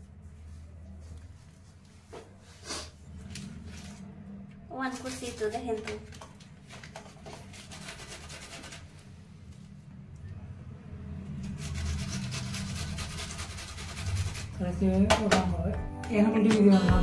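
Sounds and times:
onion rasping on metal grater: 7.5s - 8.9s, 11.4s - 14.6s.

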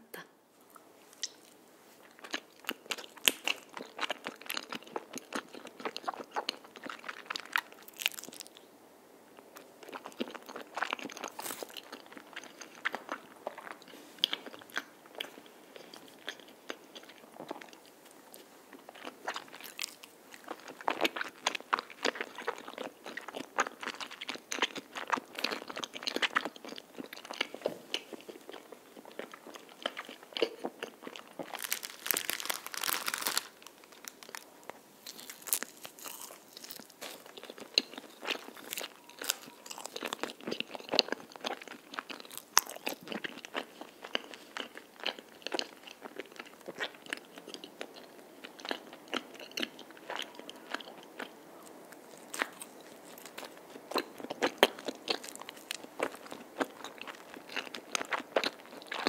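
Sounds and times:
chewing with clicking mouth sounds: 35.1s - 59.0s.

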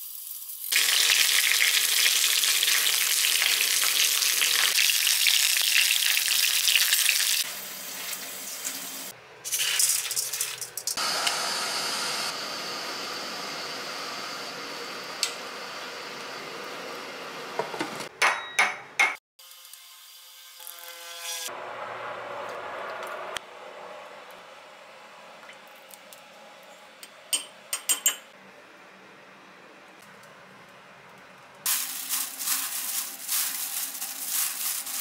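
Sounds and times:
meat sizzling in a frying pan: 0.0s - 9.1s.

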